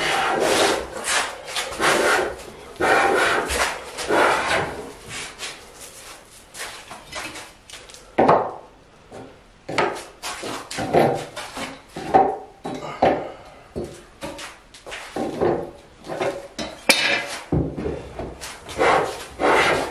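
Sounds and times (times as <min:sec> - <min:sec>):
hand plane strokes on wood: 0:00.0 - 0:05.6, 0:18.4 - 0:19.9.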